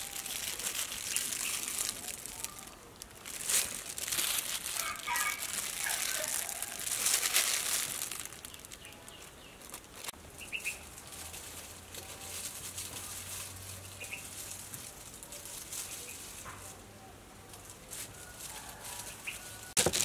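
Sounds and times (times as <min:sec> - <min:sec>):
plastic glove crinkling: 0:00.0 - 0:16.8, 0:17.6 - 0:20.0.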